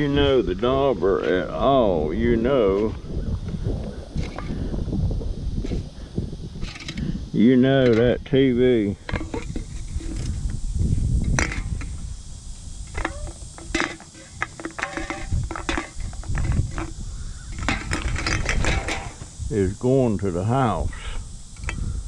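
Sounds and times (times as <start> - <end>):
cans clinking together: 9.0 - 10.3, 12.9 - 19.2.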